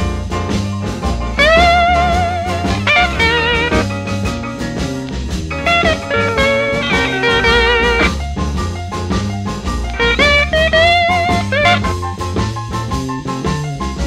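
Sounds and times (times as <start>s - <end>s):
bass and rhythm accompaniment: 0.0s - 14.0s
electric slide guitar: 1.4s - 4.7s, 5.4s - 8.2s, 9.9s - 12.0s.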